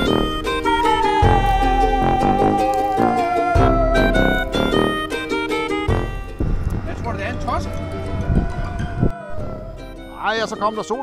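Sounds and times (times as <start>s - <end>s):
chords and bass beat: 0.0s - 8.6s
held melody note: 0.0s - 11.0s.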